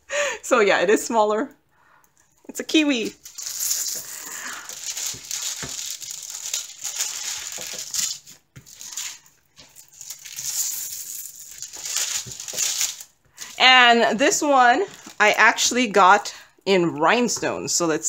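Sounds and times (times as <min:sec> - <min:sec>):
plastic film crinkling: 0:02.4 - 0:15.7.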